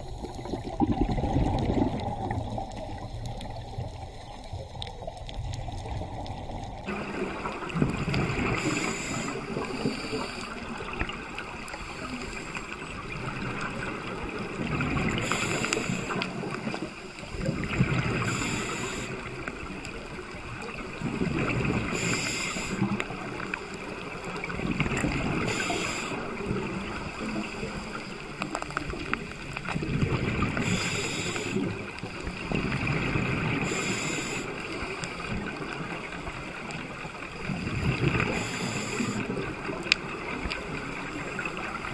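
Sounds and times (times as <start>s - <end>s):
bubbling exhaled air: 0.0s - 11.0s
underwater water noise: 0.0s - 41.9s
regulator hissing: 30.6s - 31.6s.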